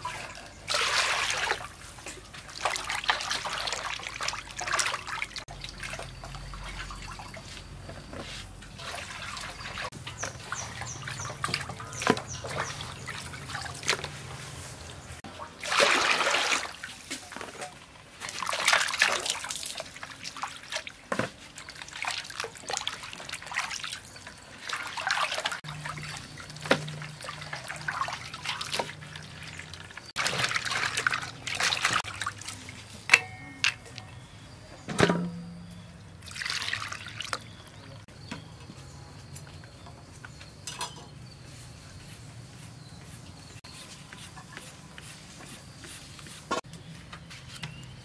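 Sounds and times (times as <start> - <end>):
water splashing in a metal pot: 0.0 - 7.8, 8.6 - 14.3, 15.3 - 34.2, 35.1 - 37.6, 40.6 - 41.1.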